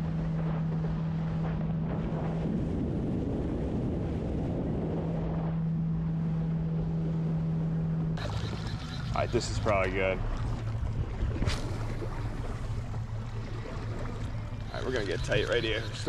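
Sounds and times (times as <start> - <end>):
wind on microphone: 0.0 - 13.0
motorboat engine hum: 0.0 - 16.0.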